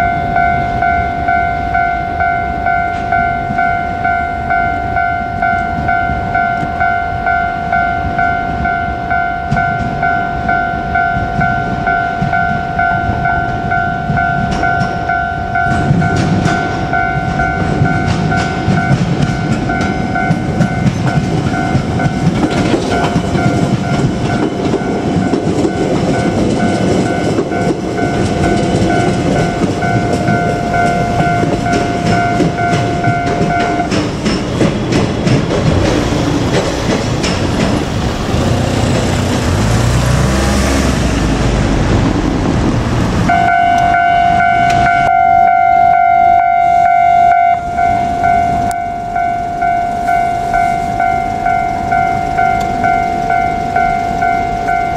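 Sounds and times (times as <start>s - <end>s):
level crossing warning bell: 0.0s - 40.6s, 43.2s - 54.9s
train wheels clacking over rail joints: 9.4s - 43.4s
car engine rising in pitch: 37.8s - 45.1s.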